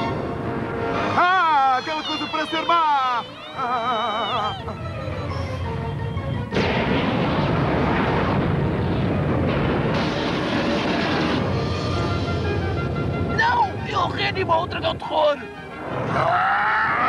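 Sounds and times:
dramatic background music: 0.0s - 17.0s
sustained rumble: 3.6s - 14.5s
cartoon explosion blast: 6.5s - 12.5s.

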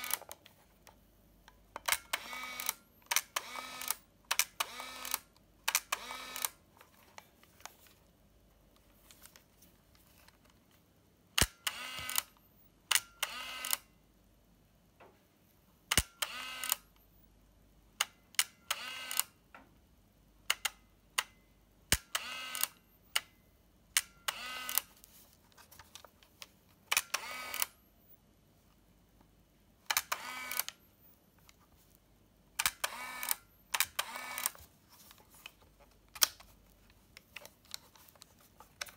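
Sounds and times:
camera film advance whir: 11.4s - 12.3s, 26.9s - 27.7s, 29.9s - 30.8s, 32.6s - 34.6s
camera shutter click: 32.6s - 34.6s.

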